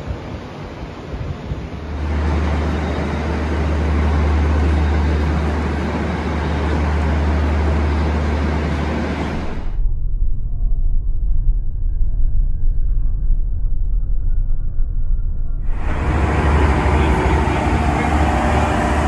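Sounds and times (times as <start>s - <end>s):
broad rushing noise: 0.0s - 9.8s, 15.6s - 19.0s
locomotive engine idling drone: 0.5s - 9.8s, 15.6s - 19.0s.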